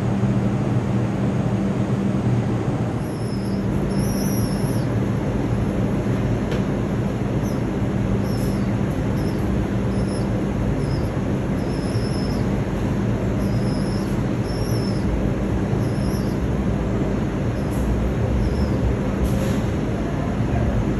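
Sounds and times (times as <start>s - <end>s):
subway station rumble: 0.0s - 20.9s.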